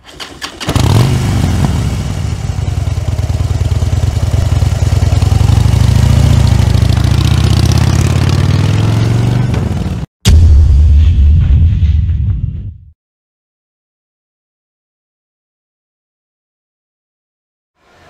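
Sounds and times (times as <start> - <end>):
motorcycle engine idling: 0.5 - 8.8.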